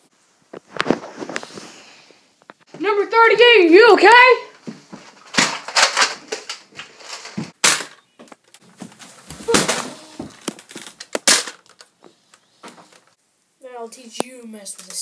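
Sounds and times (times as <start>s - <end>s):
scuffling and rustling: 8.3s - 11.1s.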